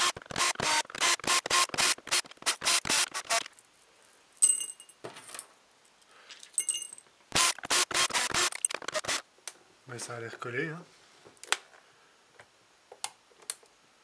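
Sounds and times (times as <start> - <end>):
cordless drill clicking bursts: 0.0 - 3.5, 7.4 - 9.2
light metallic clinks: 4.4 - 5.5, 6.4 - 7.1.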